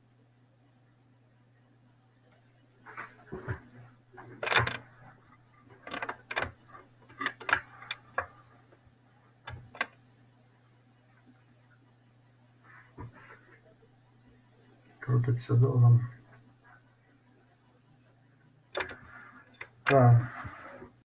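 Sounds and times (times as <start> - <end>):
equipment clicks and knocks: 4.2 - 4.9, 5.8 - 8.3, 18.8 - 19.8.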